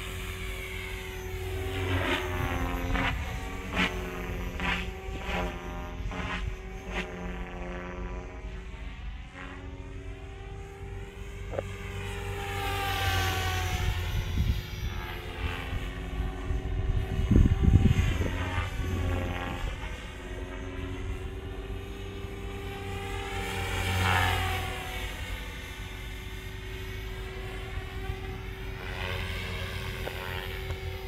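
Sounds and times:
helicopter rotor hum: 0.0 - 31.0
motor and gear whine: 0.0 - 31.0
wind rumble on microphone: 2.3 - 7.7, 13.5 - 20.1.

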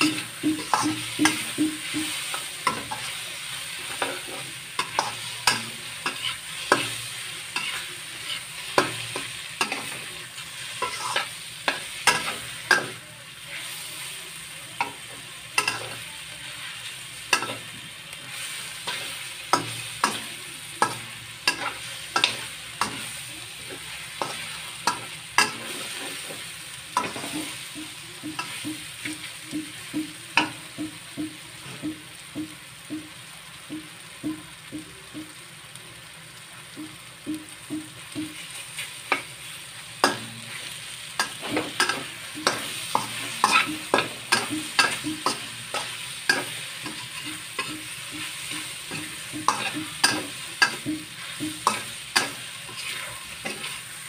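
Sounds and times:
metal spatula scraping a wok: 0.0 - 13.0, 20.8 - 29.4, 38.3 - 54.0
mushrooms sizzling in oil: 0.0 - 54.0.

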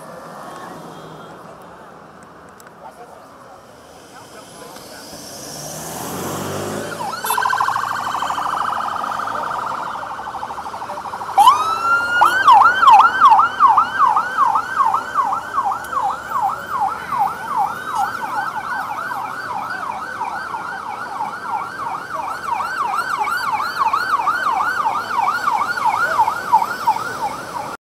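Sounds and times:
police siren warbling and yelping: 6.0 - 27.8.

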